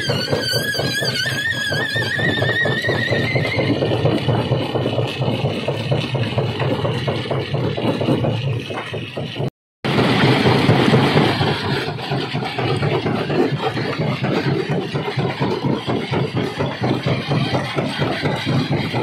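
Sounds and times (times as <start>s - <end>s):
wavering high squeal: 0.0s - 4.9s
rapid rattle of stone: 0.2s - 19.0s
machinery humming: 9.9s - 19.0s.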